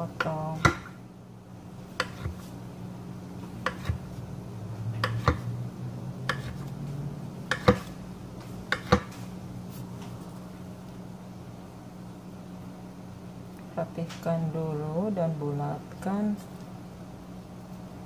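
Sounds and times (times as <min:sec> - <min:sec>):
steady low hum: 0:00.0 - 0:18.0
knife slicing dough: 0:01.9 - 0:02.6, 0:03.4 - 0:04.2, 0:05.0 - 0:05.5, 0:06.3 - 0:06.7, 0:07.5 - 0:08.0, 0:08.7 - 0:09.8
knife knocking on stone countertop: 0:07.5 - 0:07.9.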